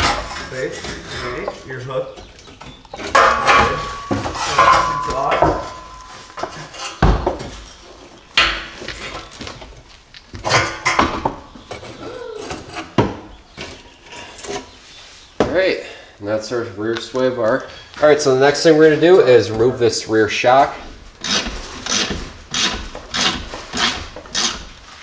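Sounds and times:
metal bar clanking and scraping: 0.0 - 7.8.

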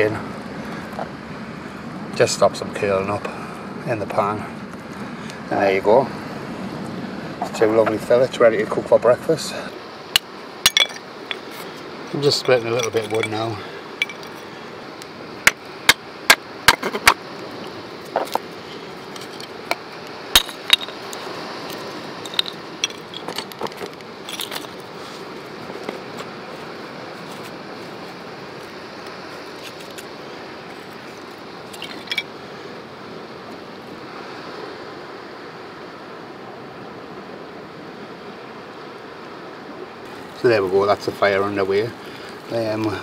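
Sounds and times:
steady hiss: 0.0 - 43.0
knife splitting kindling sticks: 15.5 - 17.2, 18.1 - 24.9.

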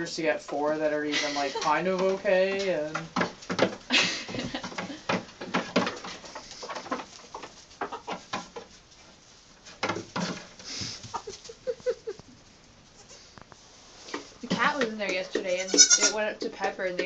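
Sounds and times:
goat hooves tapping on wood: 0.0 - 12.3, 13.4 - 17.0
hen clucking: 1.1 - 1.8, 6.0 - 8.7, 10.6 - 12.3, 14.7 - 16.4.

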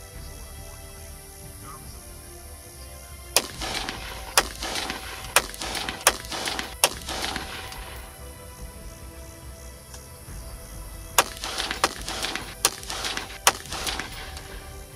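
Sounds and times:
background music: 0.0 - 14.9
rifle shots with echo: 3.4 - 8.3, 11.2 - 14.9.

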